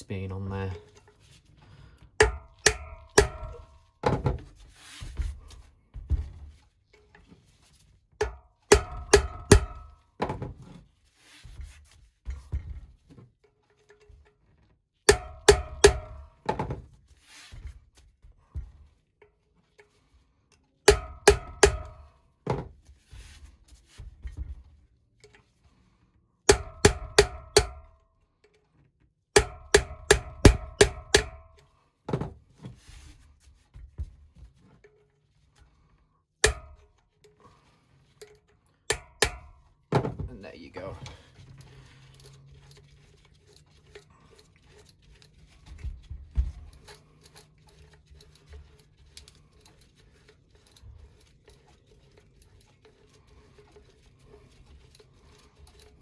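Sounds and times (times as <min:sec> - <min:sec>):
hammer striking metal chisel: 0:02.2 - 0:04.2, 0:08.2 - 0:10.4, 0:15.1 - 0:16.7, 0:20.9 - 0:22.1, 0:26.5 - 0:28.0, 0:29.4 - 0:31.7, 0:36.4 - 0:37.0, 0:38.9 - 0:39.7.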